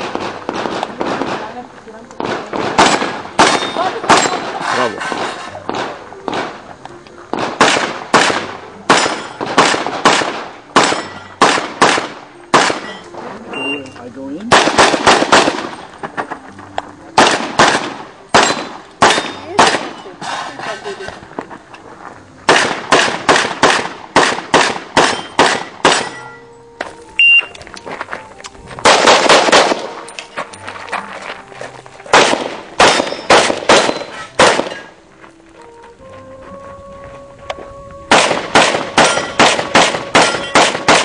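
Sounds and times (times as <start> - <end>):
handgun shots: 2.2 - 6.6, 7.3 - 13.0, 14.5 - 15.8, 17.2 - 20.0, 22.5 - 26.2, 28.8 - 30.0, 32.1 - 34.9, 38.1 - 41.0.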